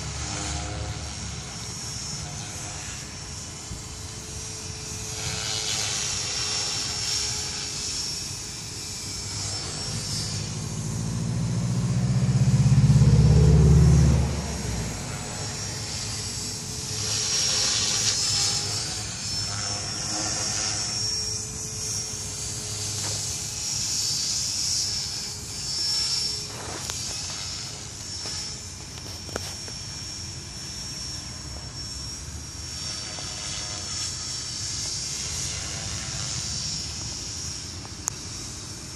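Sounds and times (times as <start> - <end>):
rc helicopter motor whine: 0.0 - 38.9
rotor low hum: 8.9 - 38.3.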